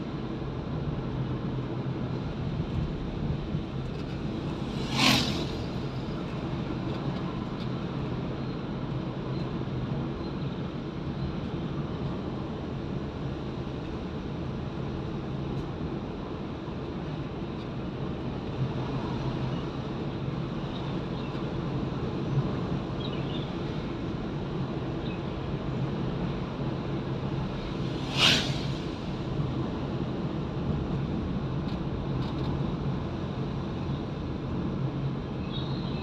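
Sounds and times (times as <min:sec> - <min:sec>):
car engine and tyre rumble: 0:00.0 - 0:36.0
brief sharp hiss: 0:27.6 - 0:29.3.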